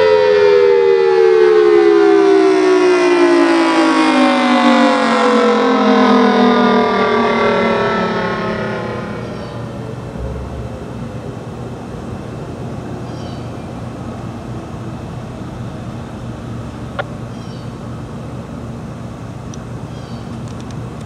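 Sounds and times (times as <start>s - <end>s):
traffic rumble: 5.6s - 21.0s.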